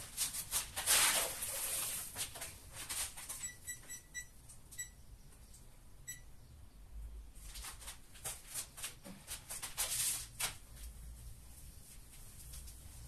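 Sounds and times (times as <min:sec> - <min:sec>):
rustling and scraping: 0:00.0 - 0:03.6, 0:07.4 - 0:13.0
short high-pitched beeps: 0:03.4 - 0:05.0, 0:06.1 - 0:06.3.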